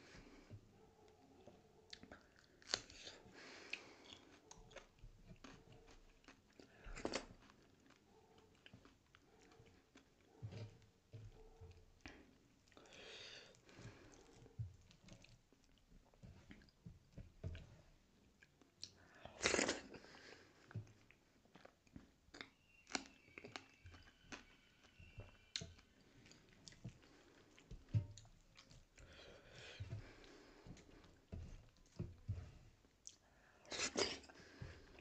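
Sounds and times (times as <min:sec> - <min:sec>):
person chewing and biting: 0:01.9 - 0:10.1
chili crunching: 0:01.9 - 0:10.4, 0:18.3 - 0:35.0.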